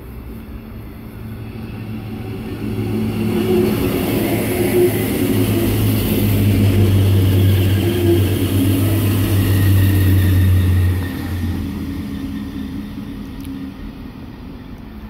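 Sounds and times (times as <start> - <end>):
diesel train engines droning: 0.0 - 15.0.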